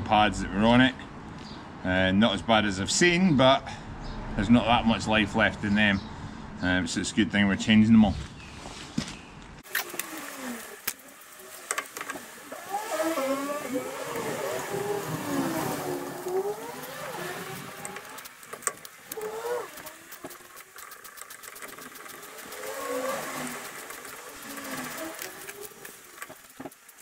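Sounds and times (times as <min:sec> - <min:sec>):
wavering pitched sound: 0:10.2 - 0:20.6.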